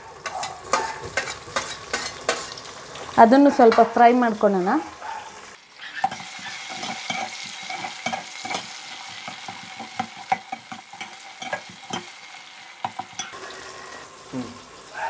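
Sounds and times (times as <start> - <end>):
onion and tomato sizzling in oil: 0.0 - 15.0
metal spoon scraping a pot: 0.2 - 2.6, 5.8 - 12.2, 12.8 - 14.1.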